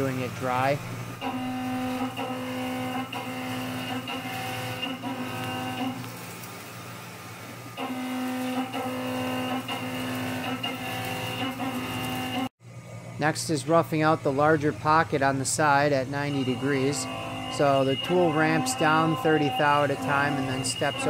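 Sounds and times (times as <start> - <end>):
milling cutter ringing drone: 0.0 - 6.1, 7.8 - 12.5, 15.9 - 21.0
low machine hum: 0.0 - 21.0.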